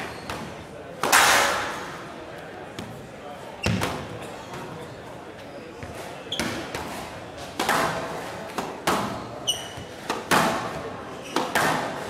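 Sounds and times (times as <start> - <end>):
shoes squeaking on floor: 0.0 - 0.6, 2.8 - 4.8, 5.4 - 6.7, 9.1 - 10.1, 11.1 - 11.7
ball hitting walls: 3.6 - 4.1, 5.8 - 12.0
racket striking squash ball: 7.6 - 12.0.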